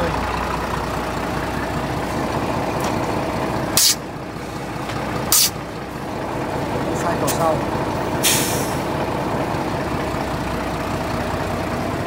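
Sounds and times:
tractor engine idling: 0.0s - 12.0s
loud short hisses: 3.8s - 4.0s, 5.3s - 5.6s, 8.2s - 8.8s.

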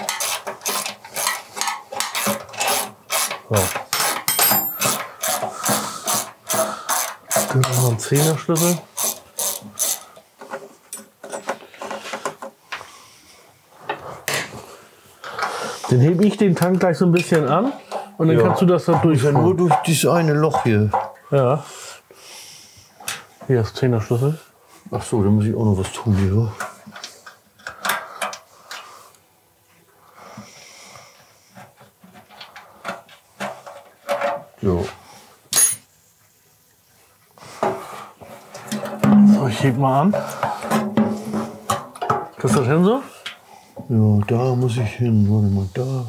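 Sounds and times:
hand tools clinking on metal: 0.0s - 5.4s, 35.5s - 35.8s
faint rasp: 5.0s - 10.6s
ratchet clicking: 6.1s - 10.0s.

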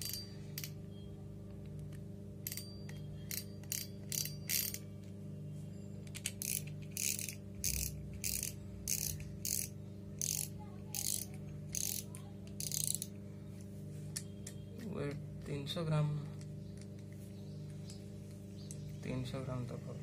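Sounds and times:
fishing reel rasping clicks: 3.3s - 4.8s, 6.2s - 13.1s.

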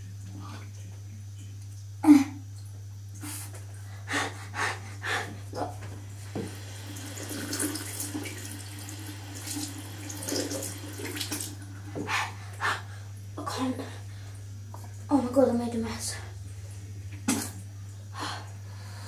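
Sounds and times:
tap water running into sink: 6.2s - 12.1s.

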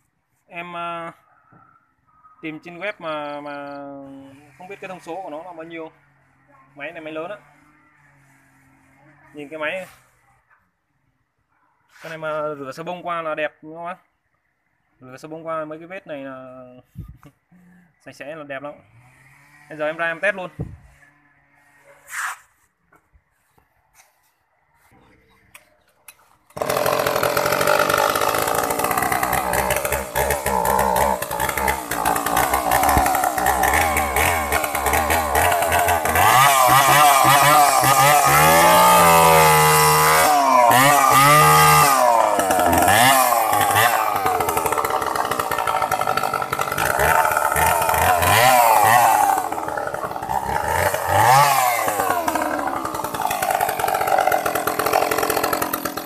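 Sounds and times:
chainsaw engine revving: 18.8s - 21.8s, 26.5s - 56.0s.

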